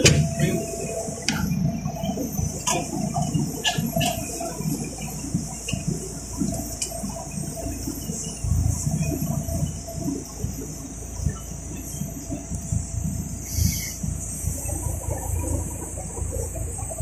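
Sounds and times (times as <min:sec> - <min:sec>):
bus engine idling: 0:00.0 - 0:08.2
steady hiss: 0:13.3 - 0:14.7.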